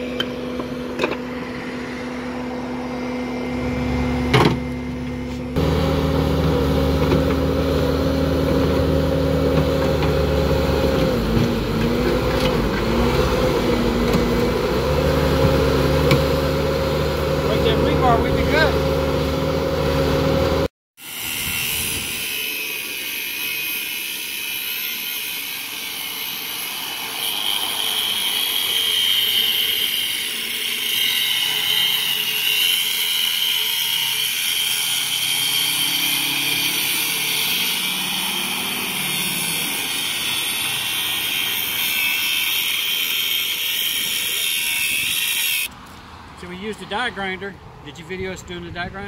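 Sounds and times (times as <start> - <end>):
die grinders whining cutting concrete: 0.0 - 45.7.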